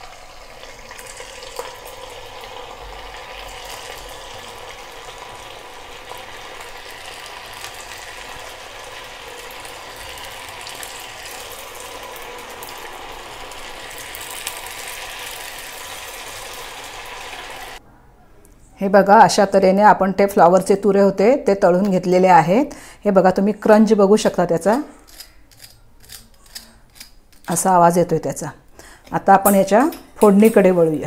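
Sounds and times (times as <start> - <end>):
food deep-frying in oil: 0.0 - 17.8.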